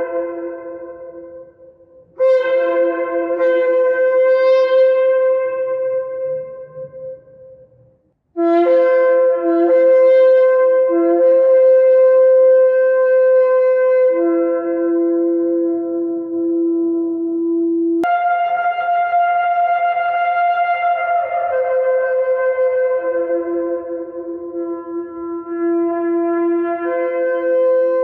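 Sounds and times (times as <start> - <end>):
shofar horn blasts: 2.2 - 7.2, 8.4 - 17.0, 18.0 - 28.0.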